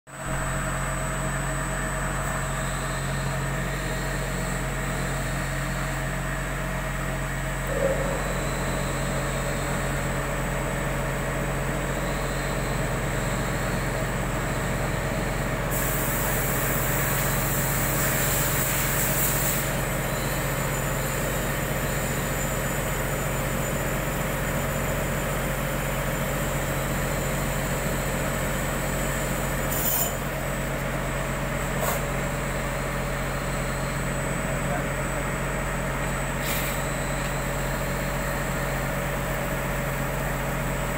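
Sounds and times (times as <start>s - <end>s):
high spindle whine: 0.2s - 40.9s.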